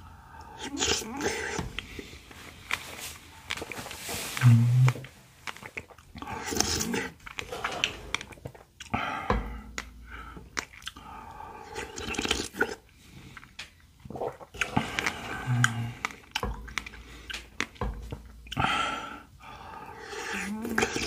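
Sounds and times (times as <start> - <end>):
chewing and swallowing: 0.4 - 21.0
wet mouth clicks and smacks: 3.5 - 8.9, 9.7 - 11.0, 13.4 - 18.6.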